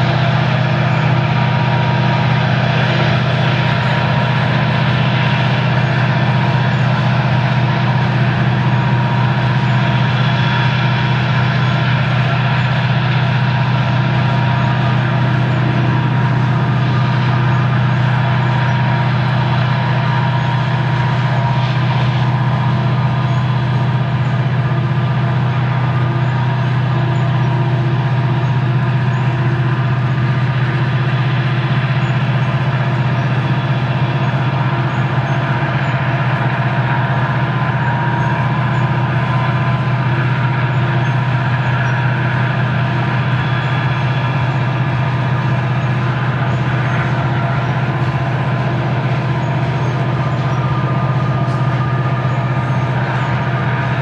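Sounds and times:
distant diesel locomotives droning: 0.0s - 54.0s
faint steady tones: 0.0s - 54.0s.

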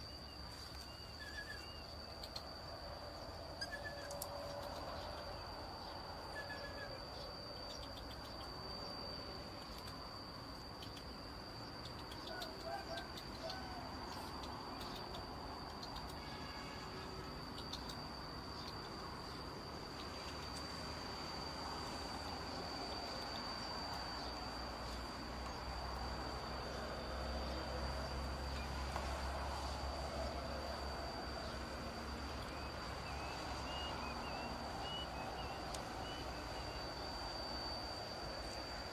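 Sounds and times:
high-pitched insect drone: 0.0s - 38.9s
low hum: 0.0s - 38.9s
outdoor noise: 0.0s - 38.9s.

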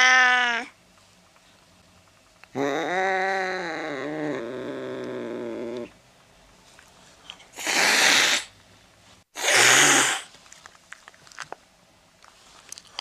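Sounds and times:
cat hissing: 7.6s - 8.5s, 9.4s - 10.3s.

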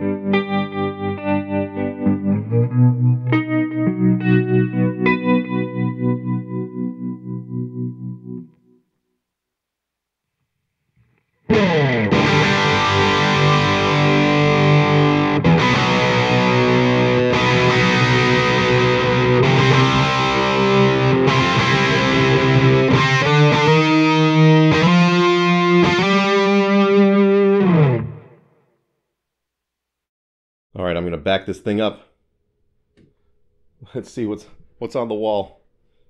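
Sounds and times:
distorted electric guitar chords: 0.0s - 8.7s, 11.5s - 28.5s.

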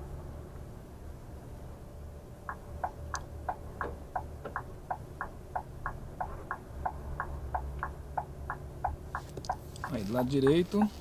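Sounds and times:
diesel engine idling: 1.8s - 11.0s
turn signal ticking: 2.4s - 11.0s.

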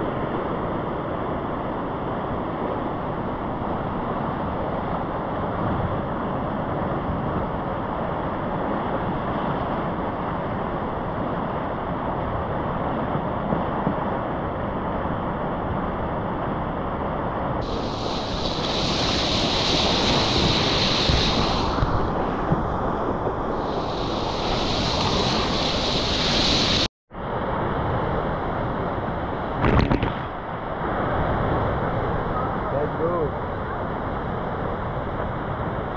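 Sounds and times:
whitewater rushing: 17.6s - 26.9s.

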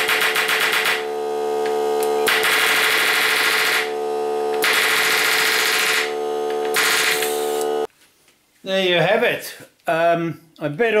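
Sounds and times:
palm nailer hammering a nail: 0.0s - 1.0s, 4.6s - 6.1s
air compressor motor humming: 0.0s - 7.9s.

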